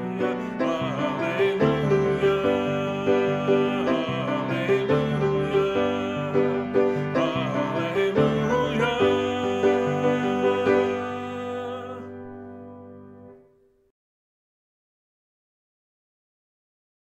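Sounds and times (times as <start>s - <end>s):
hymn tune: 0.0s - 13.4s.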